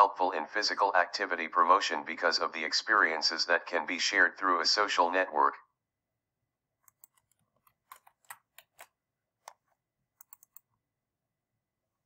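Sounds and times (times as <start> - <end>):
keyboard keys clicking: 9.5 - 10.7.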